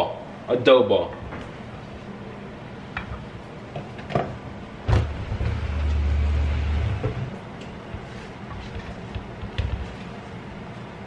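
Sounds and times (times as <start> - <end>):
wooden spoon stirring dough: 7.8 - 10.4.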